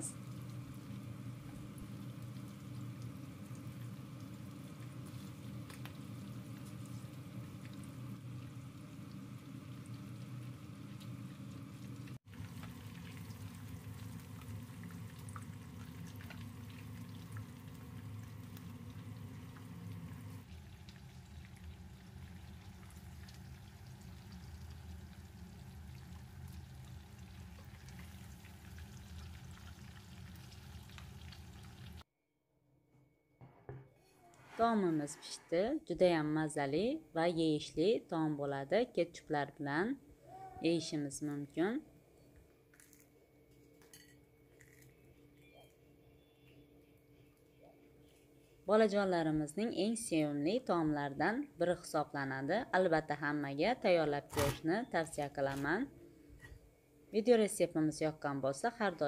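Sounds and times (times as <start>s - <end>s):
hot oil sizzling and crackling: 0.0s - 32.0s.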